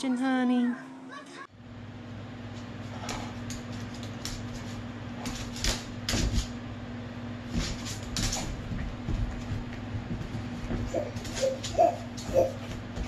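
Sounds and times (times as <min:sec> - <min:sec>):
steady low hum: 0:01.5 - 0:13.0
dog and cat tussling on wood floor: 0:02.8 - 0:06.6, 0:07.4 - 0:13.0.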